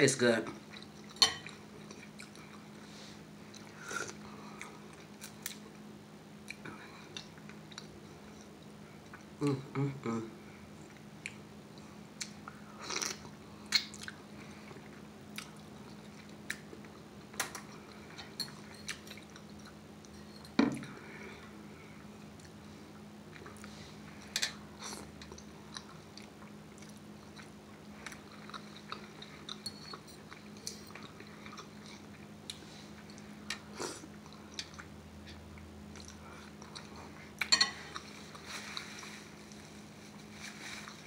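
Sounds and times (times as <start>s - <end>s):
chewing and mouth smacks: 0.6s - 2.7s, 10.9s - 17.0s, 23.3s - 23.7s, 24.8s - 38.9s.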